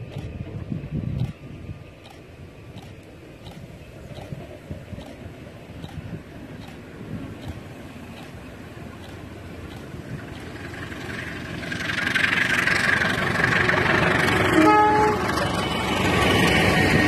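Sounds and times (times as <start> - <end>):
diesel locomotive engine and wheels: 0.0 - 17.0
short train horn blast: 14.5 - 15.4.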